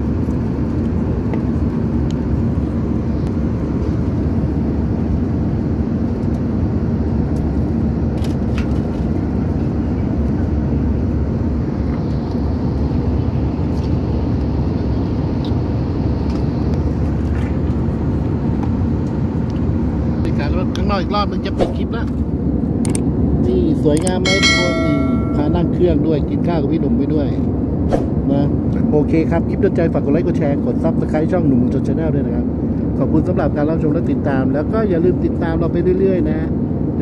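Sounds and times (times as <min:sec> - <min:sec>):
airliner cabin noise: 0:00.0 - 0:26.3
low hum: 0:24.2 - 0:26.3.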